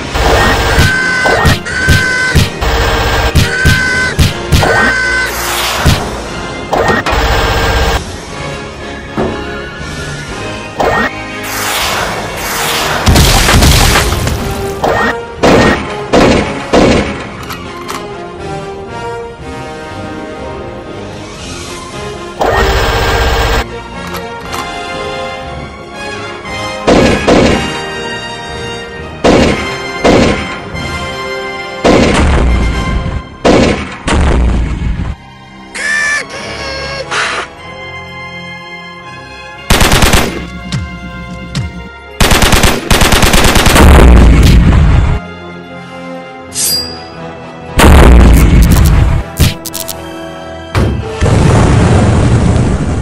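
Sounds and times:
soundtrack music: 0:00.0 - 0:53.0
gunshot blasts: 0:11.6 - 0:17.2, 0:26.9 - 0:27.8, 0:29.2 - 0:30.6, 0:31.8 - 0:32.6, 0:33.4 - 0:34.8, 0:47.8 - 0:49.6
gunshot bangs: 0:26.9 - 0:27.8, 0:29.2 - 0:30.5, 0:33.4 - 0:34.6.

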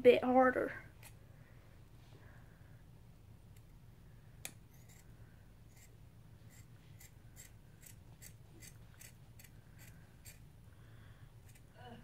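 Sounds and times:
scissors snipping fabric: 0:06.5 - 0:10.4.

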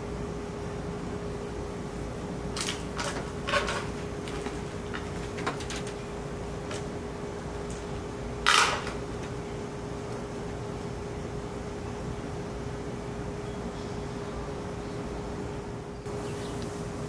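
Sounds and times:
steady background hum: 0:00.0 - 0:17.0
light clicks and rustles: 0:02.6 - 0:06.9
scraping rustle: 0:02.6 - 0:07.1.

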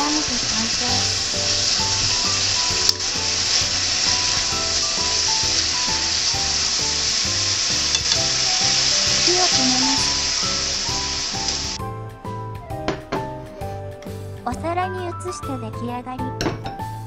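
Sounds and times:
chopsticks stirring food: 0:00.0 - 0:11.8
food sizzling in frying pan: 0:00.0 - 0:11.8
light background music: 0:00.0 - 0:17.0.

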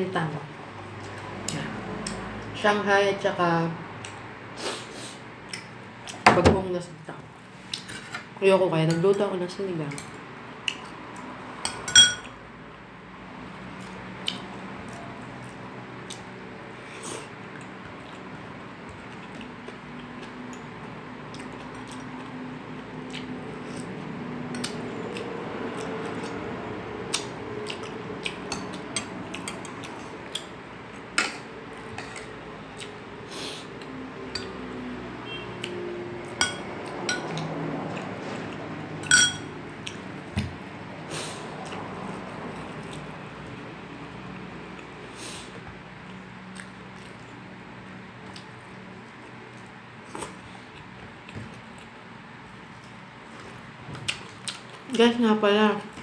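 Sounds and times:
spoon clinking against bowl: 0:11.7 - 0:12.3, 0:36.4 - 0:37.3, 0:39.0 - 0:39.5.

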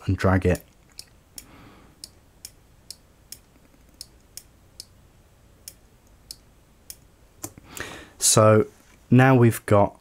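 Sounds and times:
computer mouse clicking: 0:00.6 - 0:04.9.

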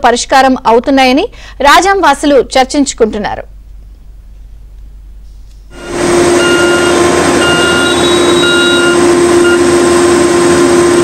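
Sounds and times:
reversing alarm beeping: 0:05.7 - 0:09.9
construction machinery engine hum: 0:05.7 - 0:11.0.

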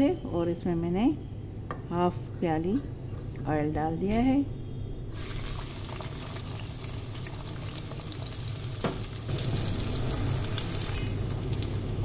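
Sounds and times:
onion sizzling in hot oil: 0:05.2 - 0:12.0.

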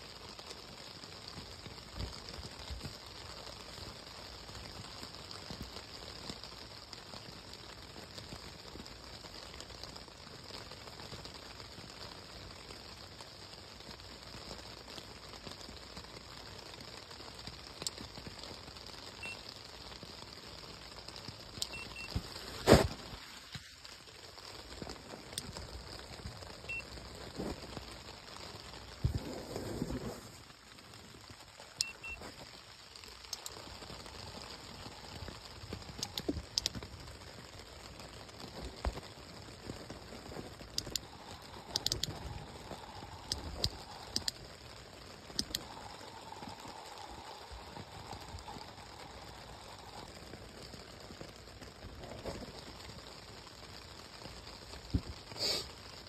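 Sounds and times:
rain on tent fabric: 0:00.0 - 0:56.0.

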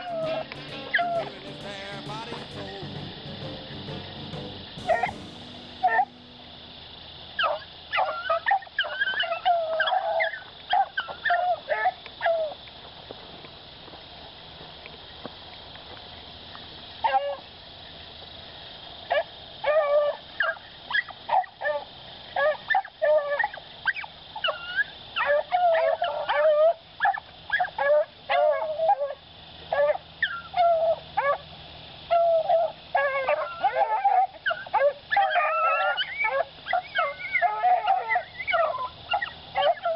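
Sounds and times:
hounds baying: 0:00.0 - 0:06.2, 0:24.4 - 0:31.4, 0:32.1 - 0:39.9.

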